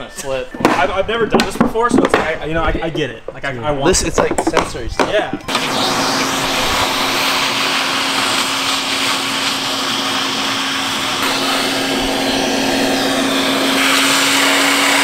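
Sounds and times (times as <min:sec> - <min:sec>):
vacuum cleaner running: 0:05.4 - 0:15.0.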